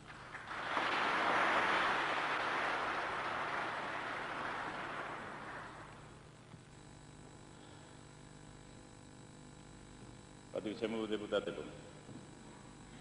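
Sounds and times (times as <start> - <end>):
large audience applauding: 0.0 - 6.2.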